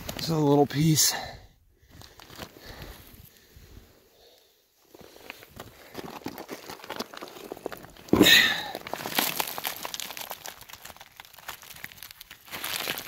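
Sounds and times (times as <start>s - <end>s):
loose rock crunching: 4.8s - 13.0s.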